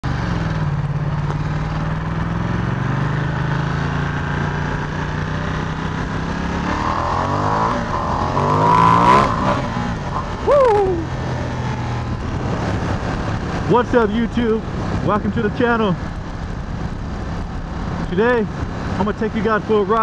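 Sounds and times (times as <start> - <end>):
motorcycle engine accelerating: 0.0 - 19.1.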